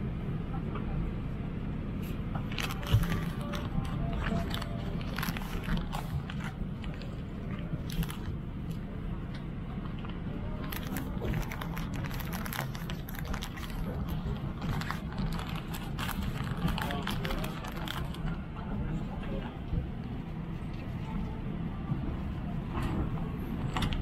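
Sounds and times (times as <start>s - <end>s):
airliner cabin hum: 0.0s - 24.0s
plastic wrapping crinkling: 2.4s - 8.8s, 10.0s - 18.4s.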